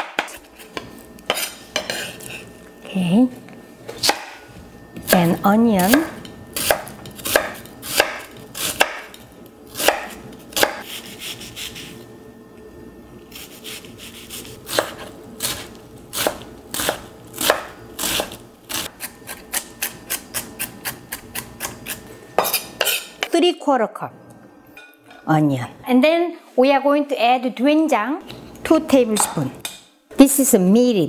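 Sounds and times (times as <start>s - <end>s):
knife chopping on wooden board: 5.9s - 9.1s, 9.8s - 11.7s, 13.6s - 15.6s, 16.2s - 18.4s.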